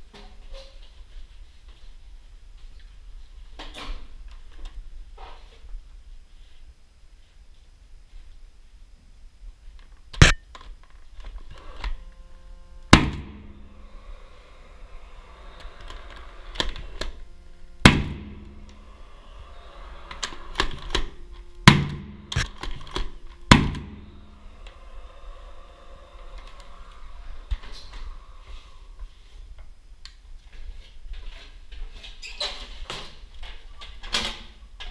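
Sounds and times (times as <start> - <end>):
nail gun shots: 12.9 - 13.4, 17.8 - 18.4, 20.6 - 24.0.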